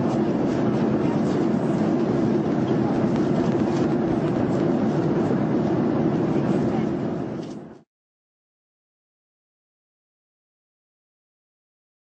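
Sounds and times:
airliner cabin engine noise: 0.0s - 7.9s.

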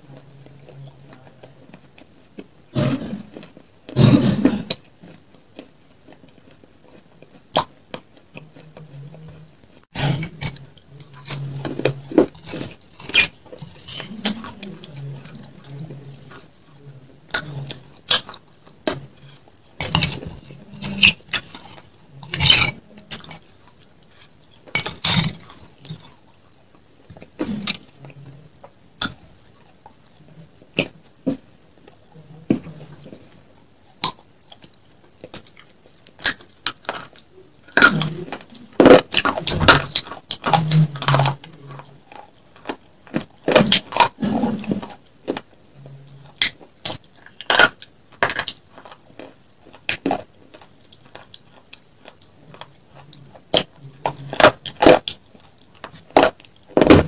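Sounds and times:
eating noises: 0.0s - 57.0s.

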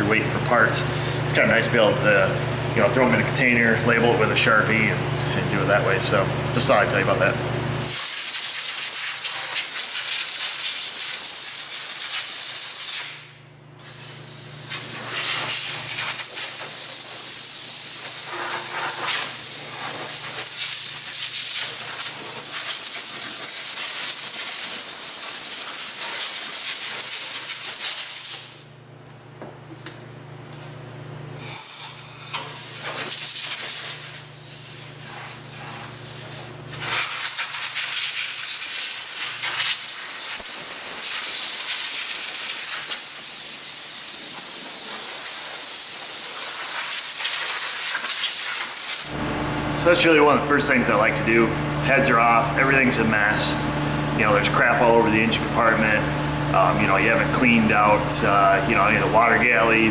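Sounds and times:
compressed air blow gun hissing: 7.9s - 13.2s, 13.8s - 28.6s, 31.4s - 49.1s.

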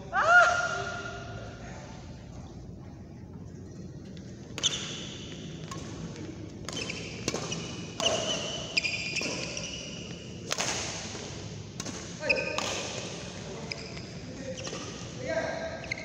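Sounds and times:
shoes squeaking on court: 3.7s - 10.5s, 13.4s - 16.0s
rackets hitting shuttlecock: 4.5s - 13.4s, 14.6s - 15.1s.

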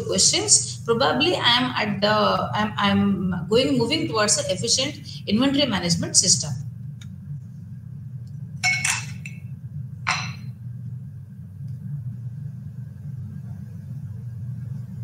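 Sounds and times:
steady low hum: 0.0s - 15.0s
drinking glass clinking: 8.6s - 9.4s, 10.1s - 10.5s.

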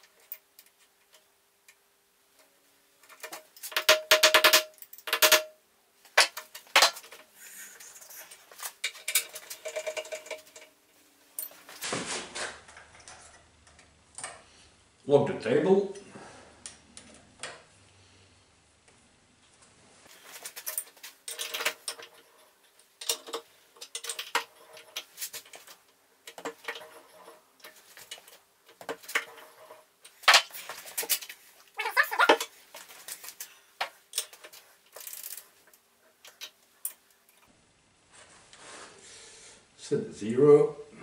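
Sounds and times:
metal tools clinking and knocking: 7.8s - 11.7s, 20.2s - 31.3s.

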